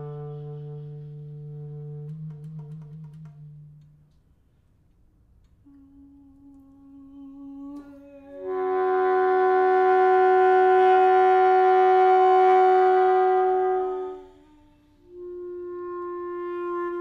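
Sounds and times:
alto saxophone long note: 0.0 - 2.5, 5.6 - 17.0
clarinet held note: 5.6 - 17.0.

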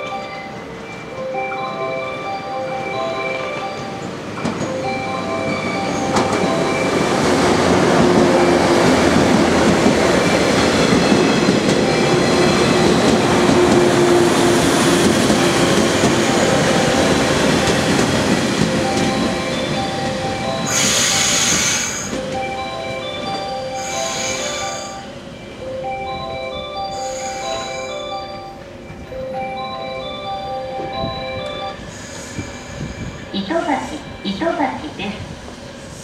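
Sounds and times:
station chime melody: 0.0 - 8.9, 15.0 - 21.5, 22.1 - 35.0
train low whine: 0.0 - 36.0
train wheels clicking over rail joints: 3.5 - 4.9, 5.5 - 22.6.

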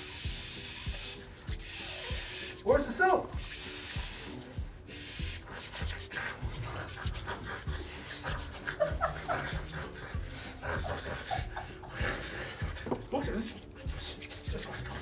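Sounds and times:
hands rubbing together: 0.0 - 15.0.

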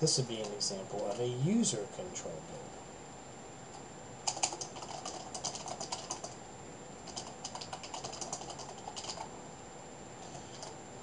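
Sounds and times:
typing on computer keyboard: 4.2 - 6.4, 7.0 - 9.3, 10.5 - 10.8.

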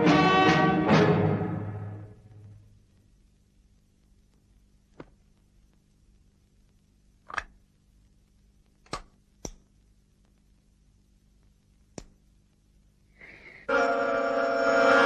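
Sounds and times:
loud music held chord: 0.0 - 2.2, 13.7 - 15.0.

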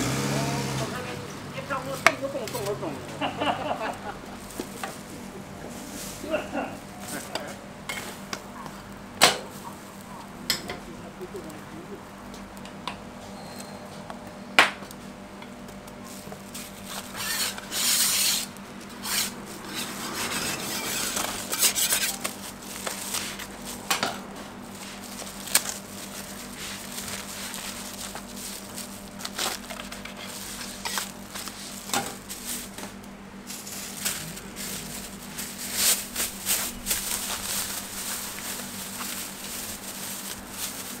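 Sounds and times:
plastic bag rustling: 1.6 - 7.4, 16.0 - 18.6, 19.2 - 41.0
steady low hum: 2.9 - 13.2, 14.2 - 41.0
utensils scraping a griddle: 16.1 - 24.0, 24.8 - 32.9
rubbing and rustling: 16.1 - 41.0.

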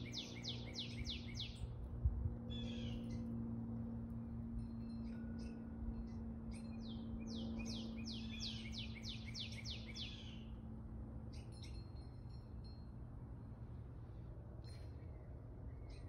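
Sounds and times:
bird chirps: 0.0 - 1.7, 5.0 - 10.5
songbird singing: 0.0 - 1.9, 2.5 - 3.4, 4.7 - 12.4, 14.6 - 16.0
low steady hum: 0.0 - 16.0.

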